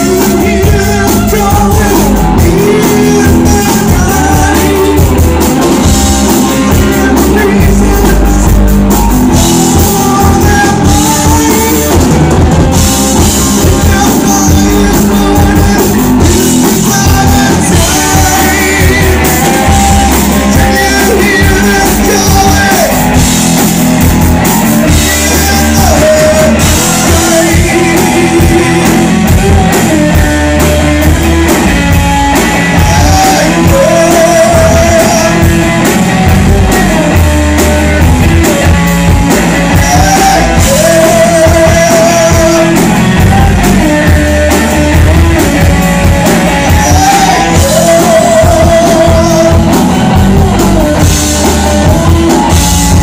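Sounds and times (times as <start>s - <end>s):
drum kit: 0.0s - 53.0s
electric guitars: 0.0s - 53.0s
live rock band playing: 0.0s - 53.0s.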